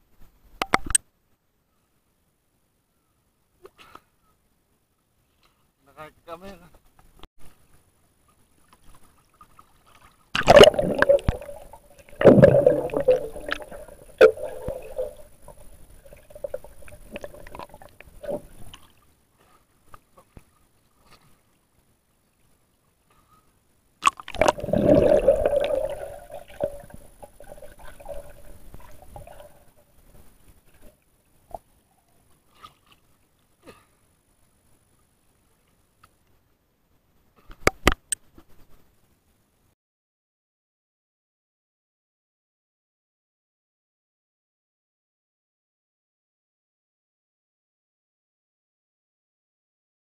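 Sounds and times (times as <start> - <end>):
water splashing on camera: 8.6 - 19.1, 24.0 - 31.6.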